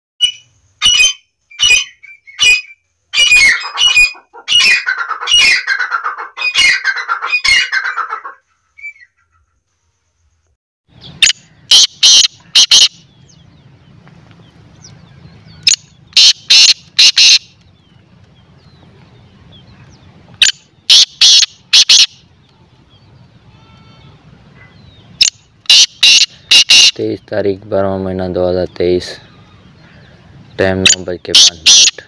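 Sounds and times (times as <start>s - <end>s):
francolin calling: 11.0s - 13.6s, 14.8s - 17.9s, 19.3s - 27.4s, 28.7s - 32.0s.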